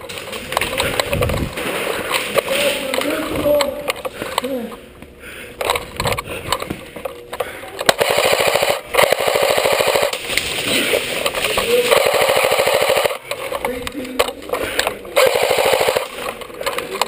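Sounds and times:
airsoft gun firing bursts: 7.9s - 10.7s, 11.8s - 13.3s, 15.2s - 16.3s.

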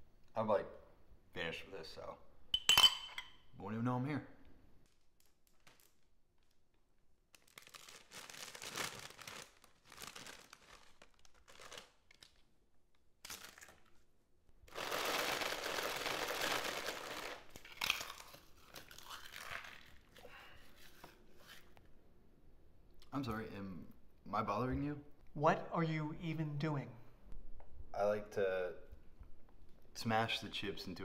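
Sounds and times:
chip bag crinkling: 4.8s - 6.7s, 7.3s - 12.5s, 13.2s - 14.1s, 14.7s - 20.2s.

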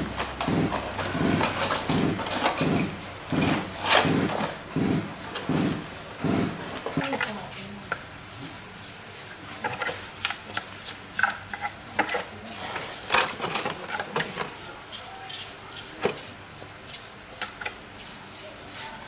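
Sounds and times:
tools clicking and knocking: 0.0s - 8.0s, 13.1s - 14.6s.

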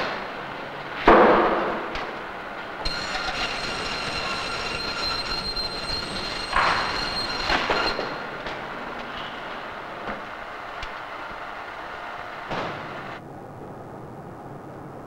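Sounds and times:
band saw cutting meat: 2.9s - 8.0s.

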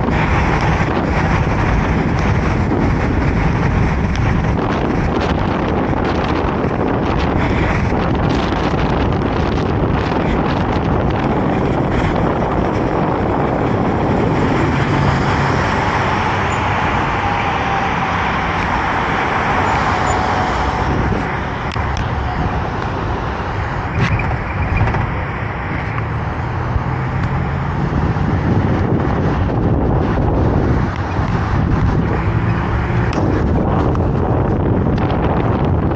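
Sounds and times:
highway traffic: 0.0s - 35.9s
wind on microphone: 0.0s - 35.9s.

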